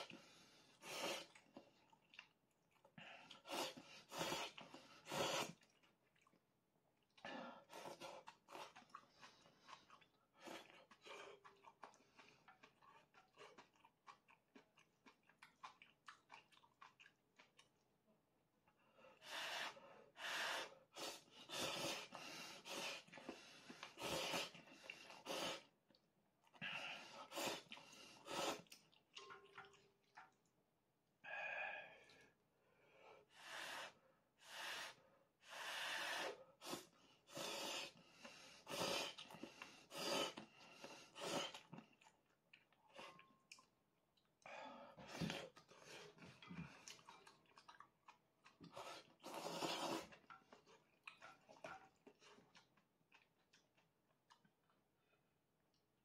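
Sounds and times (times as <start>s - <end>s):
chewing: 1.2s - 3.4s, 7.0s - 17.8s, 39.0s - 55.8s
person slurping noodles: 3.4s - 5.7s, 21.2s - 25.7s, 27.2s - 28.8s, 48.6s - 50.4s.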